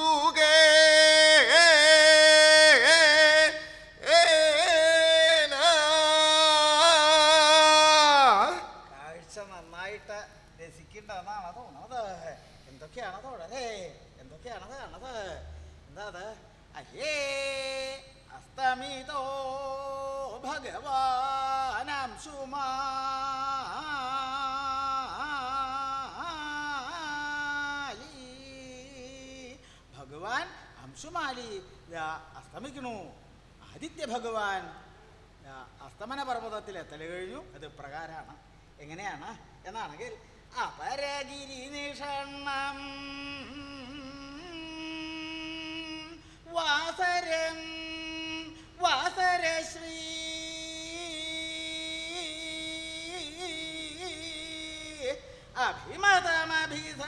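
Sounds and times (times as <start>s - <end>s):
person chanting slowly: 0.0s - 10.5s, 40.5s - 57.0s.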